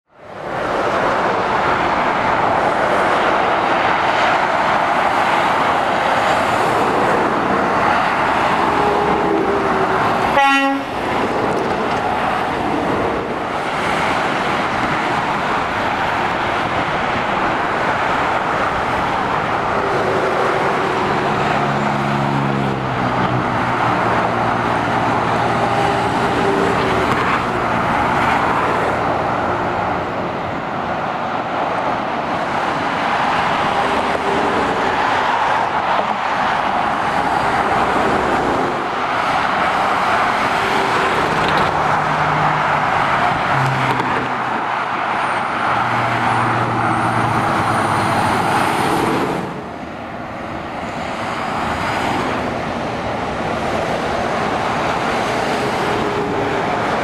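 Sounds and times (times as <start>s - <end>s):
motorway traffic tyre roar: 0.0s - 57.0s
vehicle horn toot: 10.3s - 10.9s.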